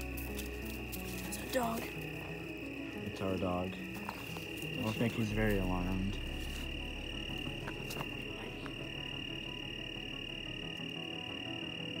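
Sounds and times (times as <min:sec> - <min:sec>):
crickets chirring: 0:00.0 - 0:12.0
low rumble: 0:05.2 - 0:10.7.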